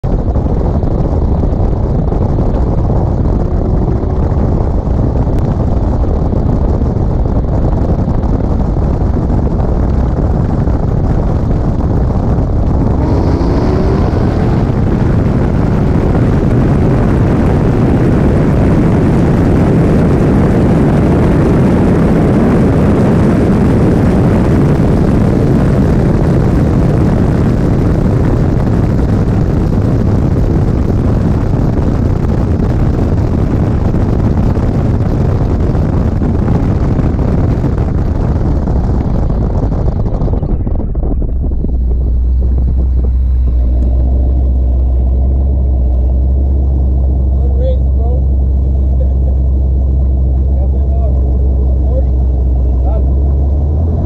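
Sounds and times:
car engine accelerating: 0:00.0 - 0:54.0
wind rumble: 0:00.0 - 0:54.0
faint rising tone: 0:12.8 - 0:15.3, 0:40.5 - 0:47.4.

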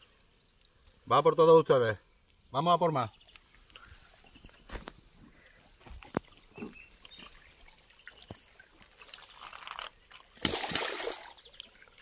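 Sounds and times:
water sloshing and splashing: 0:06.0 - 0:12.0.

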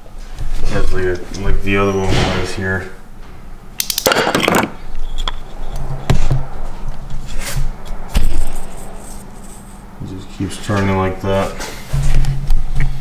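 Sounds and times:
sharp knocks of parts handled: 0:03.8 - 0:05.4.

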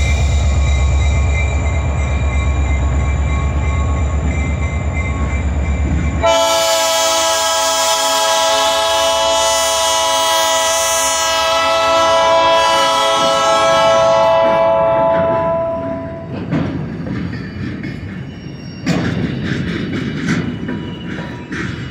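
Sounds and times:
train wheels rumbling on rail: 0:00.0 - 0:21.9
locomotive air horn blast: 0:06.2 - 0:16.2.

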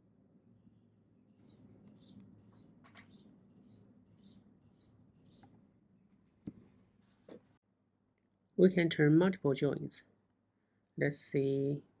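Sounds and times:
servo whining in high chirps: 0:01.3 - 0:05.5
single click: 0:02.2 - 0:03.2.

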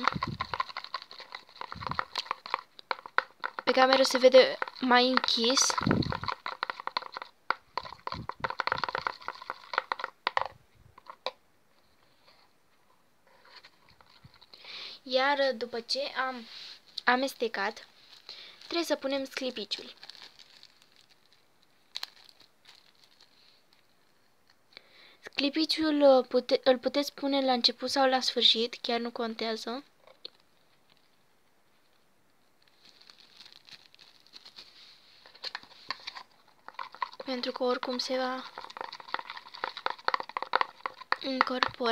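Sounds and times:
plastic bag of glitter rustling: 0:00.0 - 0:11.3, 0:15.2 - 0:24.3, 0:30.2 - 0:41.9
metal rod stirring sticky glue: 0:00.0 - 0:11.4, 0:13.4 - 0:14.6, 0:35.2 - 0:41.9.

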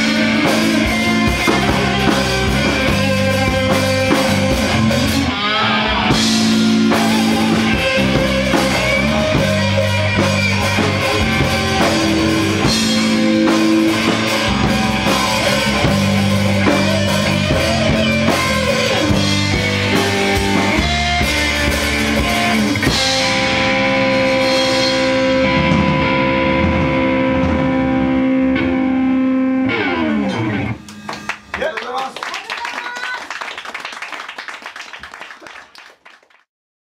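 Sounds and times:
rock band playing: 0:00.0 - 0:35.2.

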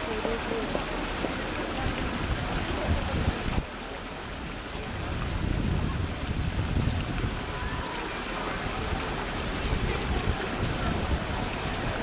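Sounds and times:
wind rumble on microphone: 0:01.8 - 0:03.7, 0:04.3 - 0:12.0.

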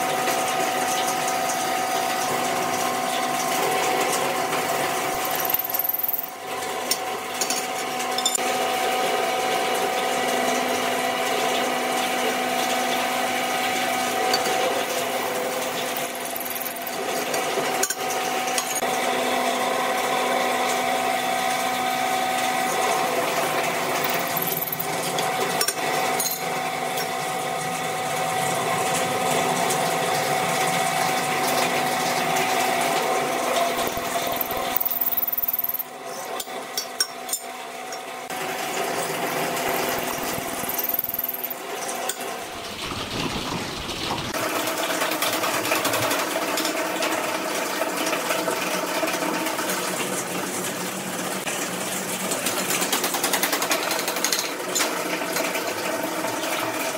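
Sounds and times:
drill press motor hum: 0:04.6 - 0:06.4, 0:15.8 - 0:17.1, 0:23.3 - 0:26.3, 0:33.6 - 0:36.4, 0:39.2 - 0:41.6
drill bit drilling metal: 0:05.0 - 0:06.4, 0:15.9 - 0:17.0, 0:23.9 - 0:25.0, 0:33.7 - 0:35.9, 0:39.6 - 0:41.6.

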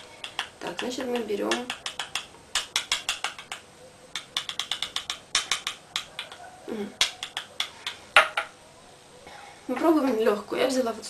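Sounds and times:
plastic jar clicking: 0:00.2 - 0:03.6, 0:04.2 - 0:06.4.

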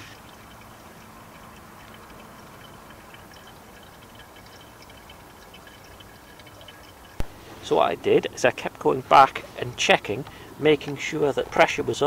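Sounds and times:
fluid trickling and dripping: 0:00.0 - 0:12.0
steady low hiss: 0:00.0 - 0:12.0.

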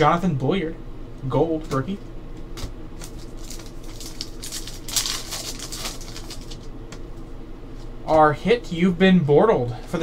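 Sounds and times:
foil wrapper crinkling: 0:03.0 - 0:06.7.

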